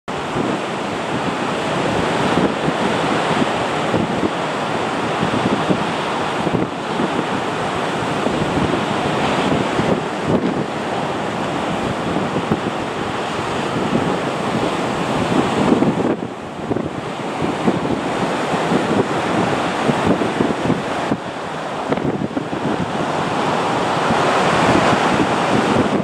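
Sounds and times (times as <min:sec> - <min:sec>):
distant jet engine roar: 0:00.1 - 0:26.0
wind on microphone: 0:00.1 - 0:26.0.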